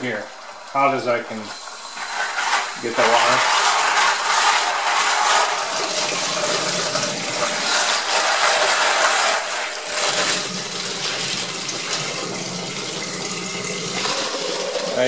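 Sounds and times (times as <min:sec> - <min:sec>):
water running from faucet: 0:00.0 - 0:15.0
brass cases clinking and rattling: 0:07.4 - 0:12.7, 0:13.9 - 0:15.0.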